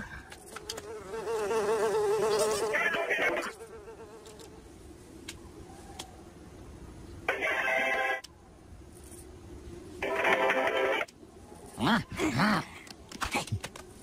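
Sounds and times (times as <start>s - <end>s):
insect-like buzz: 0.4s - 5.0s.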